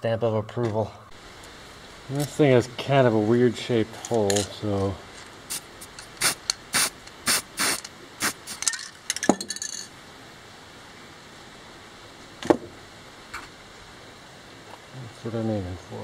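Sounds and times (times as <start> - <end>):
metal parts clinking: 4.0 - 4.6, 8.5 - 9.9.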